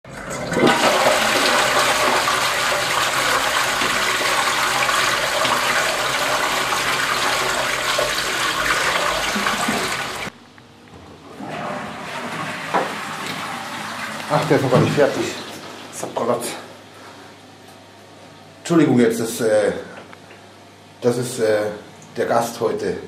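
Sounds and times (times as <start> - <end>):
toilet flushing: 0.1 - 10.3, 11.3 - 16.7.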